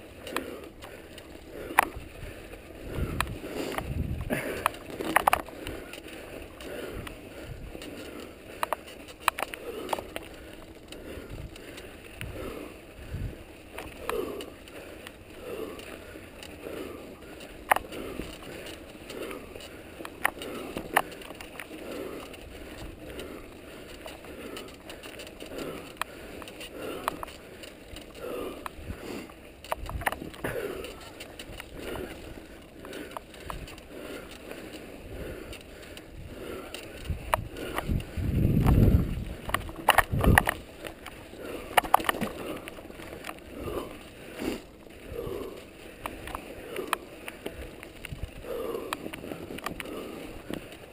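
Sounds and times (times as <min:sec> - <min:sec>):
bike rattling: 0:00.0 - 0:50.9
tyres crunching through snow: 0:00.0 - 0:50.9.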